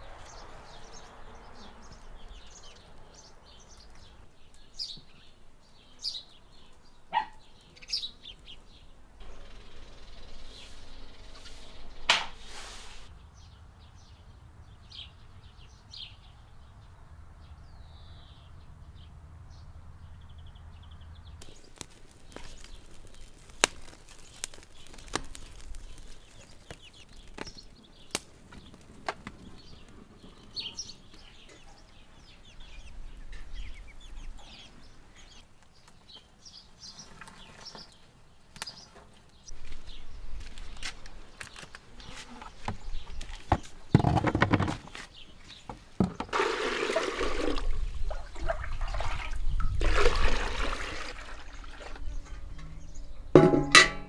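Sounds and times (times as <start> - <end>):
dry twigs crackling in fire: 0.0 - 4.8, 7.6 - 13.1, 21.4 - 34.1, 34.8 - 43.9
small birds chirping: 0.0 - 46.4, 51.2 - 53.4.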